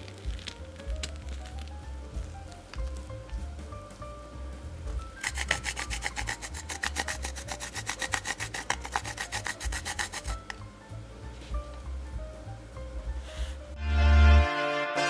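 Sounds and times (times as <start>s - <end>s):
chocolate rasping on a metal grater: 5.2s - 10.5s.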